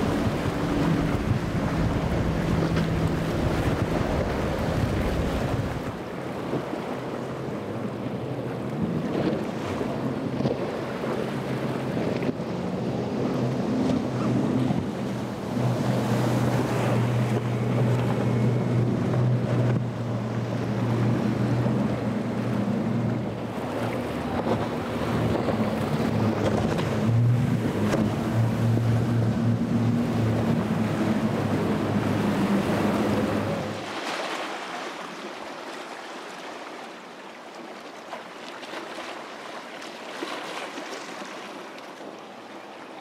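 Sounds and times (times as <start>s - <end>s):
wind buffeting microphone: 0.0s - 6.8s
waves crashing against hulls: 0.0s - 36.4s
outboard engines droning: 0.0s - 43.0s.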